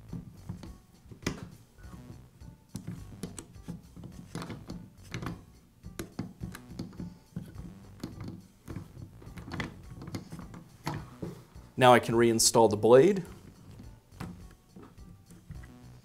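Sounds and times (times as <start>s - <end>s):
soft background music: 0.0s - 16.0s
rubber tire clicking and rubbing: 2.8s - 5.4s, 6.0s - 11.4s.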